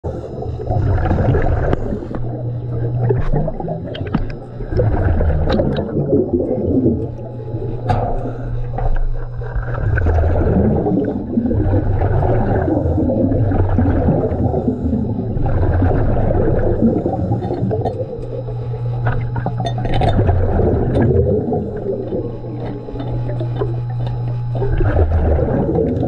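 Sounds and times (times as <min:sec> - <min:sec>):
steady low hum: 0:00.0 - 0:26.0
bubbles gurgling: 0:00.1 - 0:26.0
diver breathing underwater: 0:04.6 - 0:18.9, 0:20.4 - 0:24.0.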